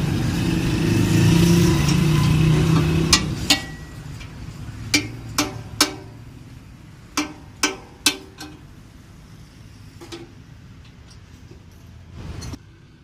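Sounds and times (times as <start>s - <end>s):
metallic knocks on steel frame: 4.9s - 6.2s, 7.1s - 8.6s.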